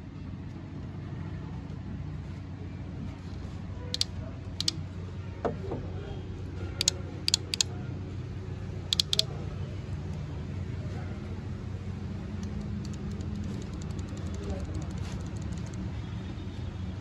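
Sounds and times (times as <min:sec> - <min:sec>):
solenoids clicking: 0:03.9 - 0:04.8, 0:06.8 - 0:07.7, 0:08.9 - 0:09.3.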